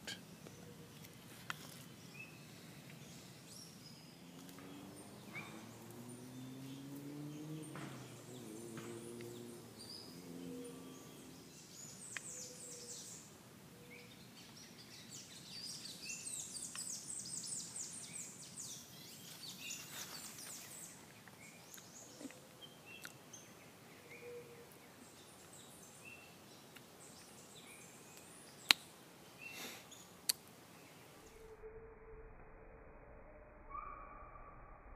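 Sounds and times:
birds chirping: 0.0 - 31.6
high-pitched bird trill: 33.7 - 34.5.

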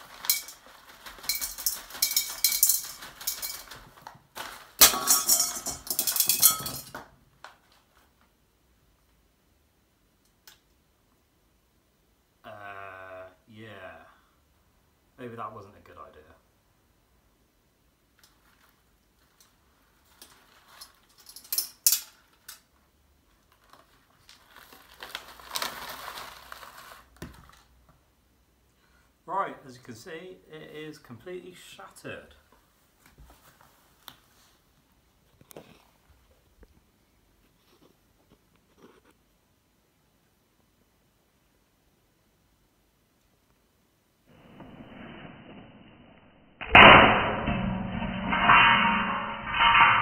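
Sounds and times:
paper rustling and crumpling: 0.0 - 4.8, 18.3 - 21.2, 23.4 - 27.7
clattering glass and stones: 1.2 - 3.8, 4.8 - 7.0
stones rattling into glass bottle: 1.2 - 3.8
glass bottle shattering: 4.8 - 7.0, 46.6 - 50.0.

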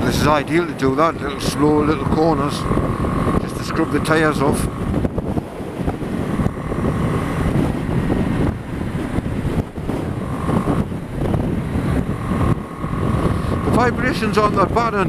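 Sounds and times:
motorcycle engine running: 0.0 - 15.0
wind rushing over microphone: 0.0 - 15.0.

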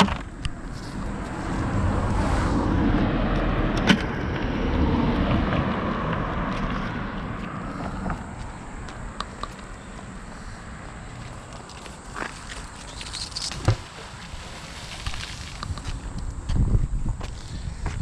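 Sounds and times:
car driving past: 0.5 - 8.8.

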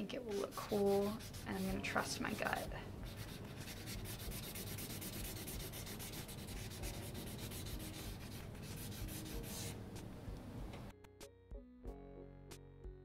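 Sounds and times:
marker scrubbing on paper: 0.1 - 9.8.

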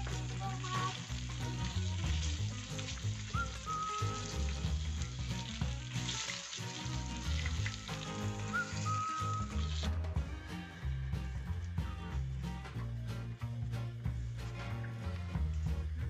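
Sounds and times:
fish sizzling in hot oil: 0.0 - 10.0
background music: 0.0 - 16.0.

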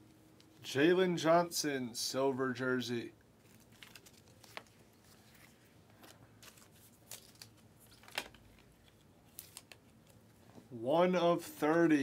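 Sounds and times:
trading cards flicking and rustling: 3.4 - 10.3.

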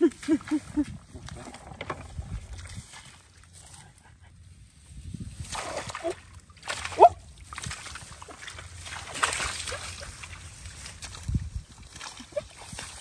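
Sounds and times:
hands splashing in muddy water: 5.3 - 13.0.

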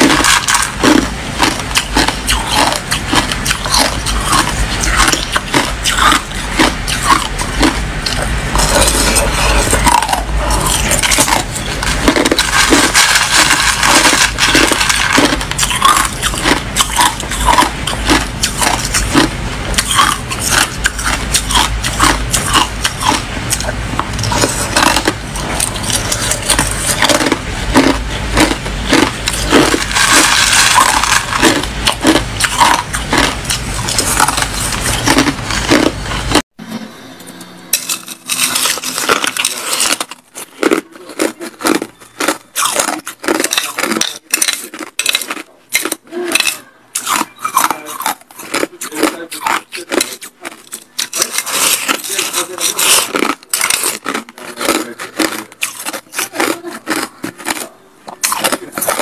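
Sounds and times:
ice cubes crunching between teeth: 0.0 - 36.4, 37.8 - 59.0
metal spoon clinking on ice: 37.8 - 40.1.

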